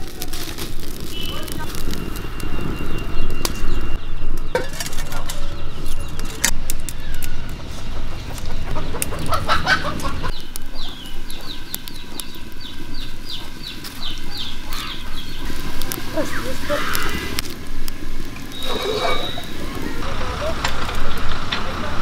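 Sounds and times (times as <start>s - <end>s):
low rumble with clicks: 5.1s - 16.2s
chickens clucking: 7.7s - 17.4s, 18.4s - 22.0s.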